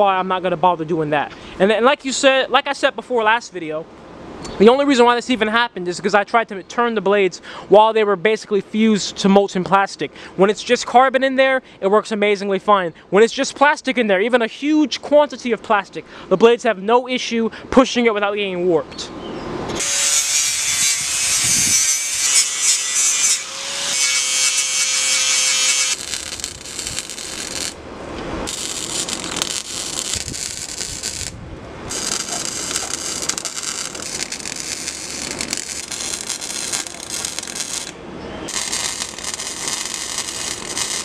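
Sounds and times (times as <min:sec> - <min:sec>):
welder arc crackling and hissing: 0:19.8 - 0:27.8, 0:28.4 - 0:41.0.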